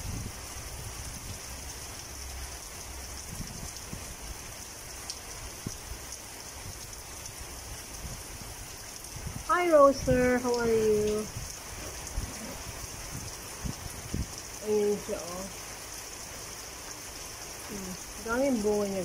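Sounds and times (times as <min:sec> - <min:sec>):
rain on leaves: 0:00.0 - 0:19.0.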